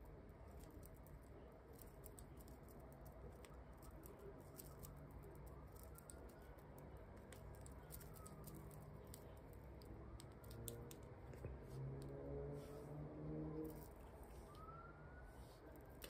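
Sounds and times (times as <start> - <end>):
crochet hook and fingernails clicking: 7.2 - 11.4.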